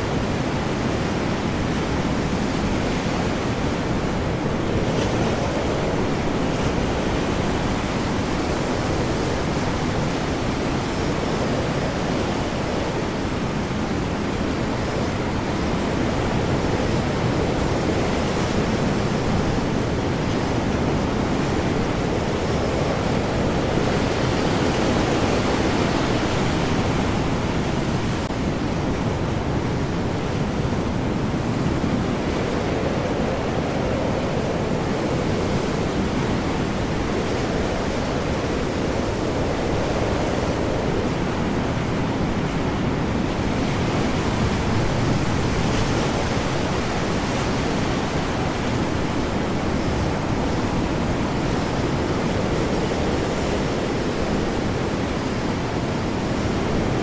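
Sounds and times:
heavy waves: 0.0 - 57.0
high wind: 0.0 - 57.0.

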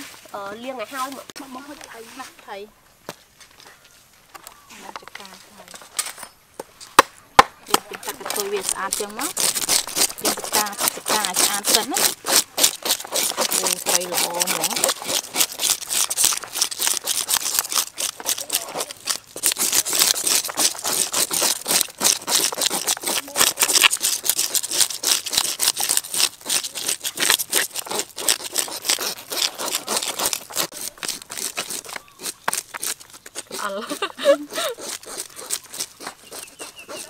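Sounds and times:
scaling tools scraping fish scales: 7.7 - 37.0.

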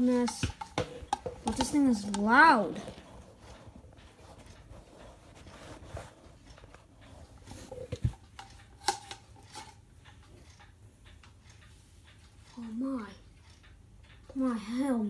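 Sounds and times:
objects clicking and knocking: 0.0 - 3.1, 7.4 - 9.8.

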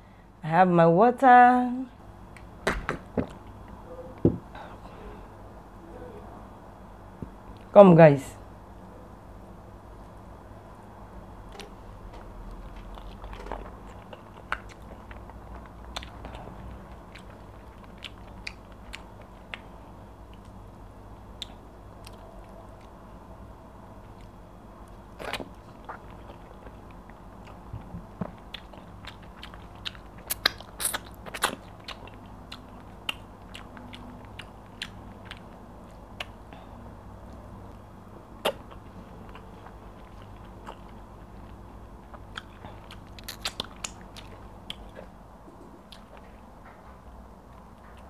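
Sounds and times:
steady low hum: 0.0 - 48.0
chewing smacks and mouth clicks: 12.5 - 20.6, 21.4 - 23.0, 24.1 - 36.5, 38.4 - 46.4.

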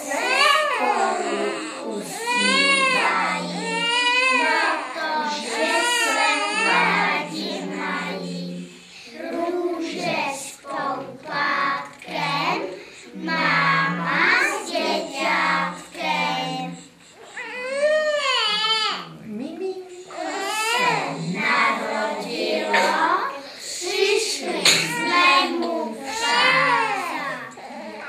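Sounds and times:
young children singing: 0.0 - 18.8, 19.6 - 28.0.

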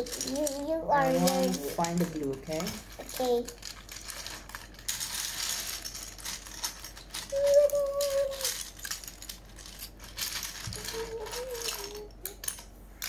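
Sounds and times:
plastic bricks clattering: 0.0 - 12.7
person humming: 10.8 - 12.2.

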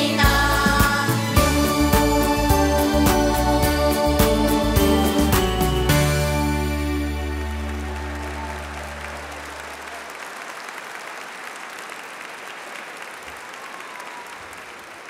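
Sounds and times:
music chord ringing: 1.4 - 9.5
audience applauding: 2.0 - 15.0.

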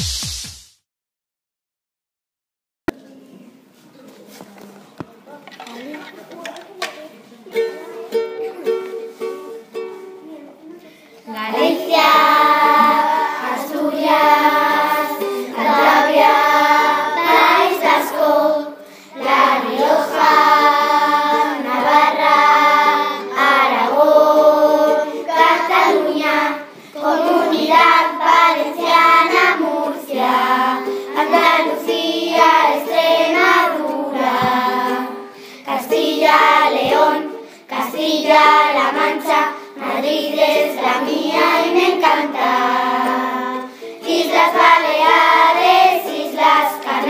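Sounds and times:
children singing: 11.3 - 47.0.

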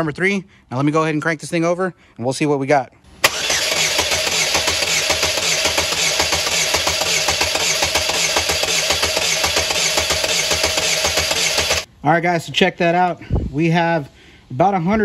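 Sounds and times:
engine cranking on starter: 3.2 - 11.9
starter click: 3.2 - 11.9.

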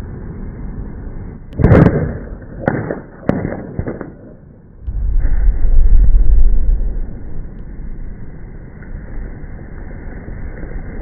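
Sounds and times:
background rumble: 0.0 - 11.0
sharp cracks: 1.5 - 7.7
rock blast bang: 4.8 - 7.2.

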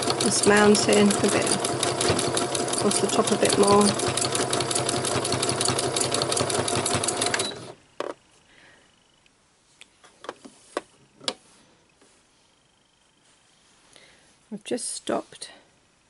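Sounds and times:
sewing machine running fast: 0.0 - 7.8.

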